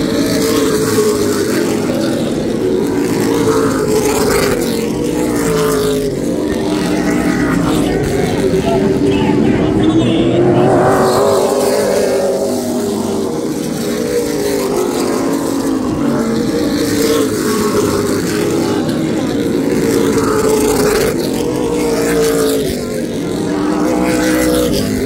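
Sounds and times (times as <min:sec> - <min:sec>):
race car engines: 0:00.0 - 0:25.0.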